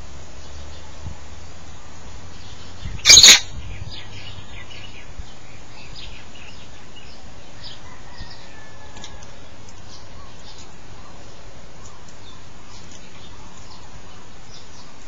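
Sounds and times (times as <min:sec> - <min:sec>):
faint bird chirps: 0:01.8 - 0:09.2
parrot screeching: 0:03.0 - 0:03.5.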